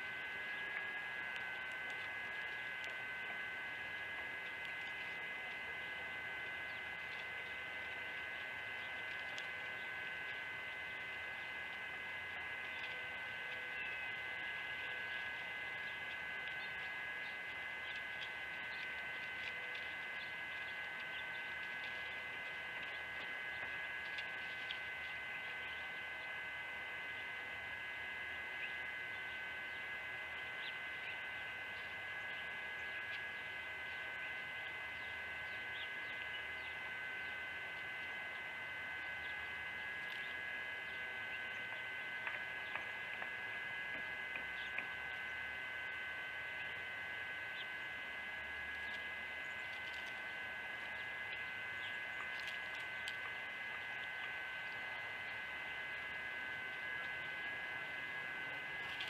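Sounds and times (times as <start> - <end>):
high-pitched whine: 0.0 - 59.0
steady hum: 0.0 - 59.0
faint ticks: 0.7 - 11.9, 48.7 - 54.8.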